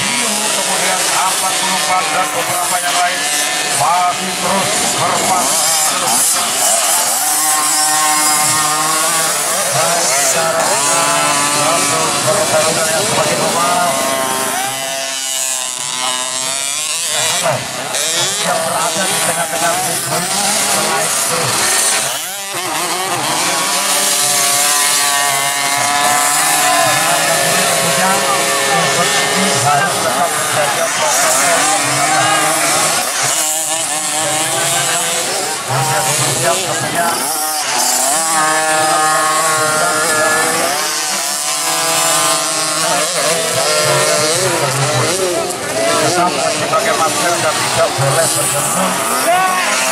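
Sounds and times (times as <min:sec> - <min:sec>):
two-stroke dirt bike engine revving: 0:00.0 - 0:49.9.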